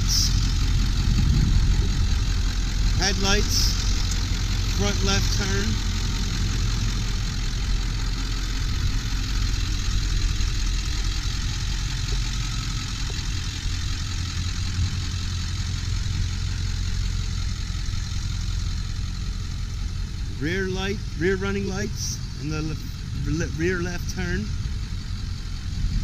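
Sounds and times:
diesel engine idling: 0.0 - 26.0.

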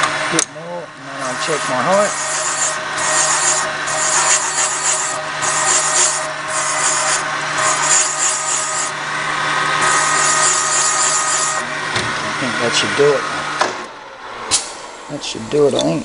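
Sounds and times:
machine motor humming: 0.0 - 16.0
harsh metal scraping: 1.1 - 9.0, 9.8 - 13.1.

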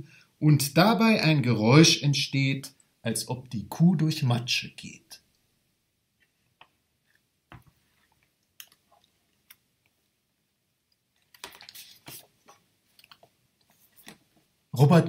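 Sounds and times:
paper pages rustling: 11.2 - 14.4.

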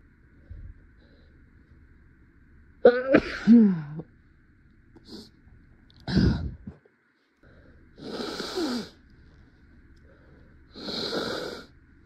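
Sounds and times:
woman breathing noisily: 7.3 - 9.4, 10.0 - 11.7.

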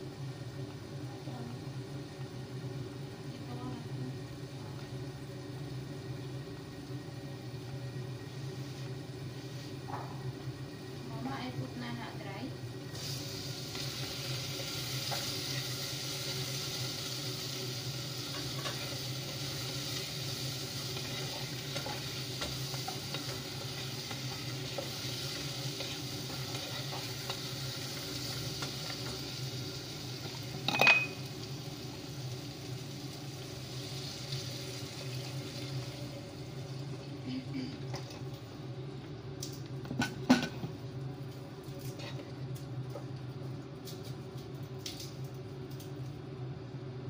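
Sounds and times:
food sizzling in a pot: 0.0 - 46.0
water pouring into a pot: 18.9 - 37.2.

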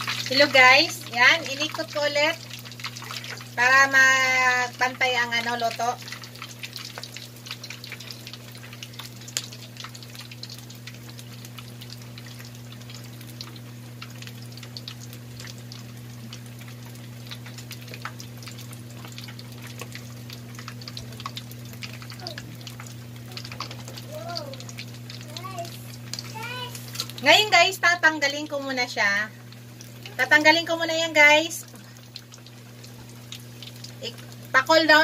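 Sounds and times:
meat deep-frying in oil: 0.0 - 35.0
steady low hum: 0.0 - 35.0.

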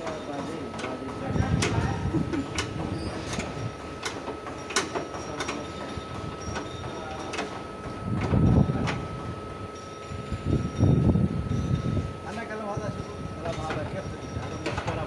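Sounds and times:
steady high hum: 0.0 - 15.0.

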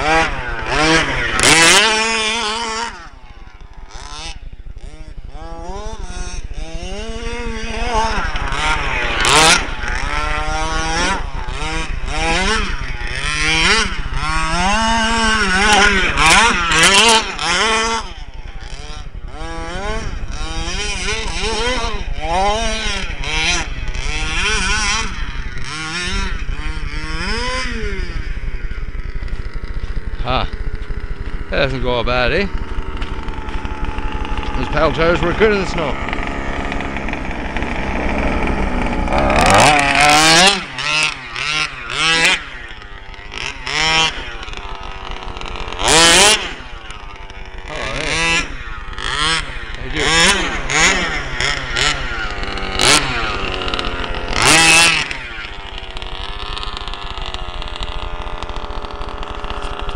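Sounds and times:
small two-stroke engine revving: 0.0 - 59.9
sharp cracks: 7.0 - 14.4, 29.1 - 59.9.

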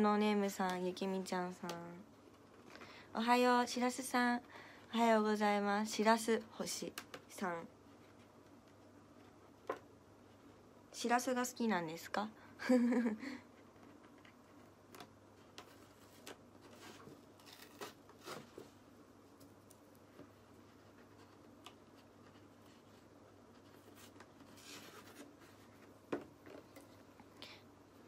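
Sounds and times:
faint taps and rustles: 19.4 - 27.1.

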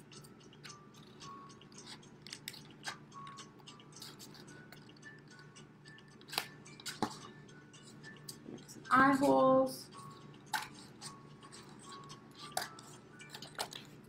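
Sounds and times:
scissors snipping paper: 10.5 - 14.0.

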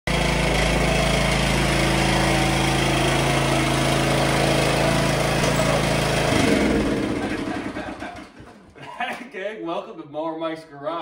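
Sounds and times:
riding mower engine running: 0.1 - 8.6.

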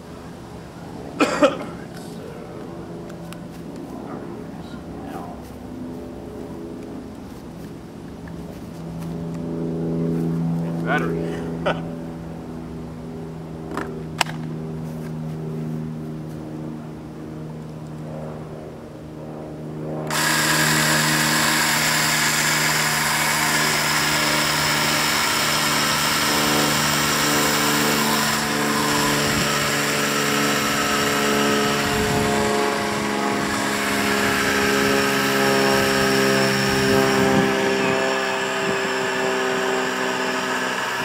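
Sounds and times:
chainsaw motor humming: 20.0 - 41.0
chainsaw cutting wood: 20.1 - 41.0.

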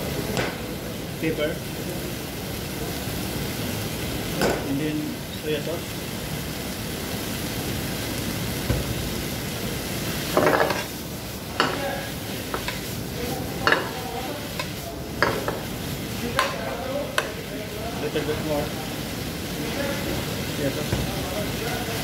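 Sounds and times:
food sizzling in a pan: 0.0 - 22.0
ladle knocking on pan: 13.6 - 14.0, 15.2 - 15.6.

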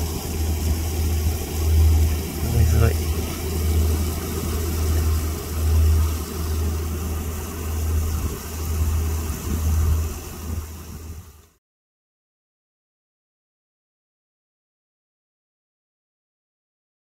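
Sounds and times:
low harbour rumble with hiss: 0.0 - 11.6.

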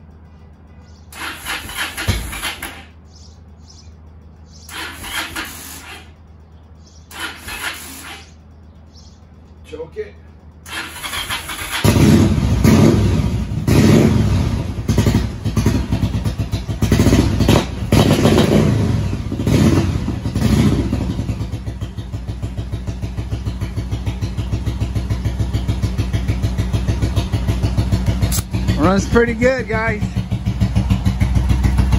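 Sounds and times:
motorcycle engine starting and revving: 0.8 - 31.9.

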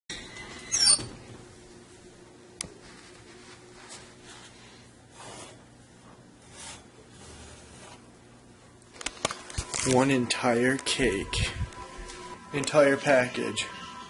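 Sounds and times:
faint steady hum: 0.1 - 14.0.

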